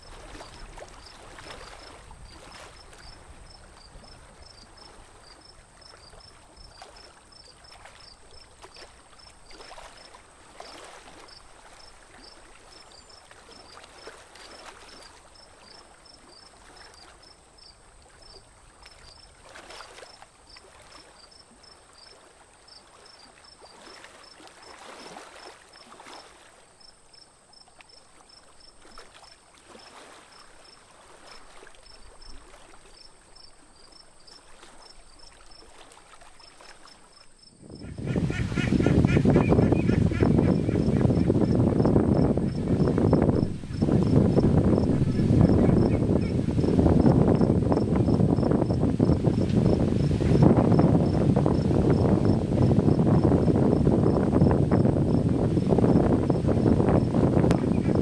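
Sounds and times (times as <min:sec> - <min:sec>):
water lapping around boat: 0:00.0 - 0:58.0
insect chirping: 0:31.8 - 0:58.0.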